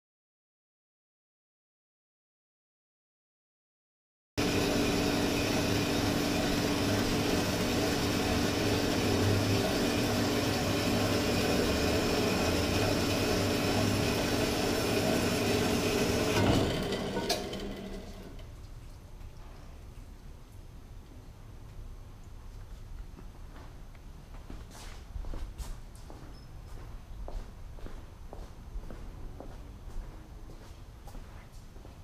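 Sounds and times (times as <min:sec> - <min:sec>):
bandsaw humming: 0:04.4 - 0:18.4
machine clunks: 0:16.2 - 0:18.2.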